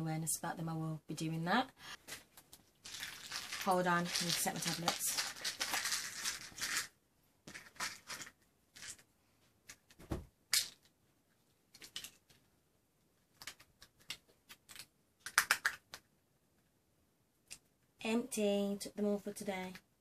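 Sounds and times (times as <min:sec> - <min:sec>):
tablet packets rustling: 0:02.0 - 0:06.9, 0:07.5 - 0:09.0.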